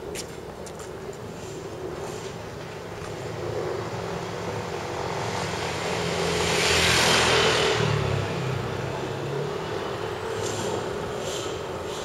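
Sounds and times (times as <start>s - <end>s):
vehicle passing by: 3.2s - 12.0s.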